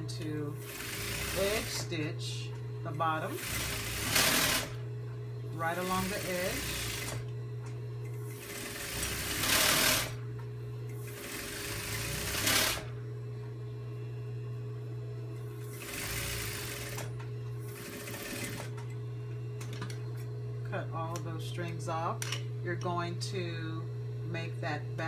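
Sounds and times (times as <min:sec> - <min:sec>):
sewing machine motor humming: 0:00.0 - 0:10.3, 0:10.9 - 0:13.0, 0:15.4 - 0:19.0
sewing machine stitching: 0:00.6 - 0:01.8, 0:03.3 - 0:04.8, 0:05.7 - 0:07.2, 0:08.3 - 0:10.2, 0:11.0 - 0:12.9, 0:15.6 - 0:17.1, 0:17.7 - 0:18.8.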